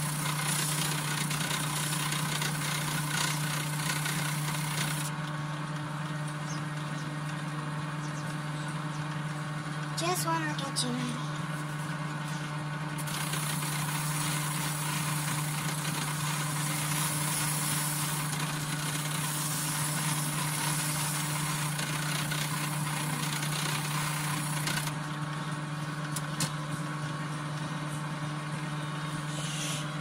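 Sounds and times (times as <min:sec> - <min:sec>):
electric grinder motor humming: 0:00.0 - 0:05.2, 0:13.0 - 0:25.0.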